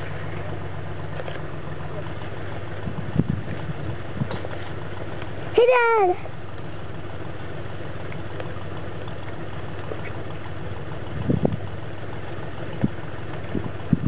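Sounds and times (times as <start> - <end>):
engine idling: 0.0 - 14.0.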